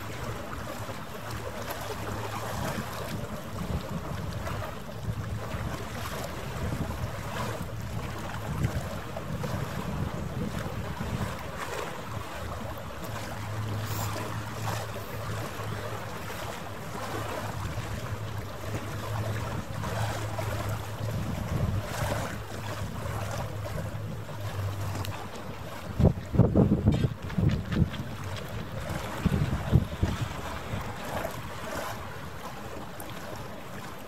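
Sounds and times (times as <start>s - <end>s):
wind on microphone: 0.0s - 33.4s
boat engine hum: 0.0s - 34.0s.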